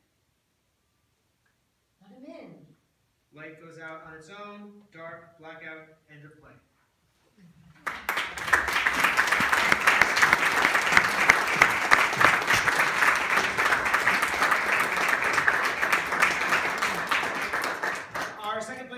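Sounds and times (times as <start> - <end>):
audience applauding: 7.8 - 18.9.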